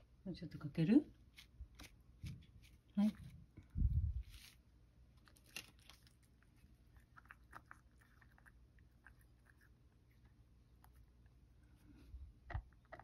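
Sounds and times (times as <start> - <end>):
cat chewing: 5.2 - 13.0.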